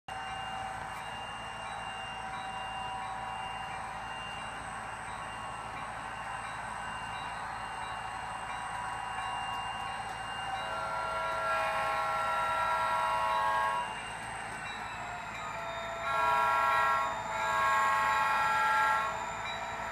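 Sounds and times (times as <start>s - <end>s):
diesel locomotive running: 0.1s - 19.9s
multi-chime air horn: 9.3s - 14.0s, 14.8s - 19.9s.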